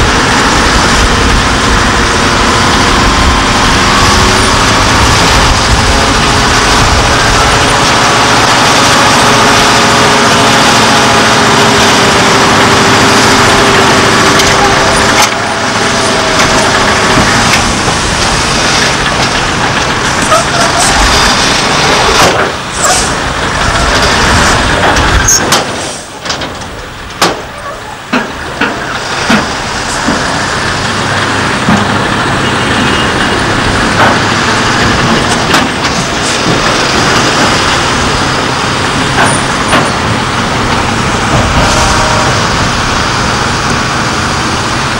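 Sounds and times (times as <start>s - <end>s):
diesel truck engine running: 0.0s - 44.9s
metal clanks and knocks: 18.8s - 31.0s, 33.9s - 37.7s, 38.8s - 41.8s.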